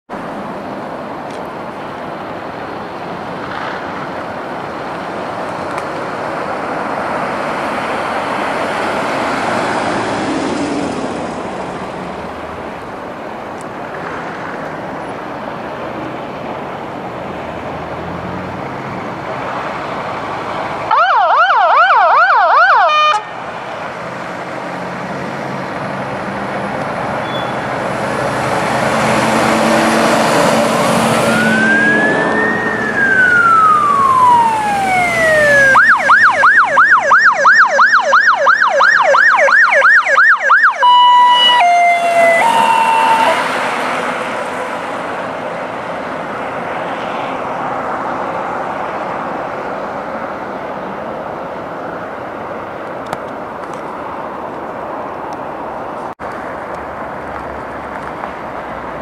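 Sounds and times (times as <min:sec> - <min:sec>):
traffic rush: 0:00.1 - 0:59.0
emergency vehicle sirens: 0:12.6 - 0:58.3.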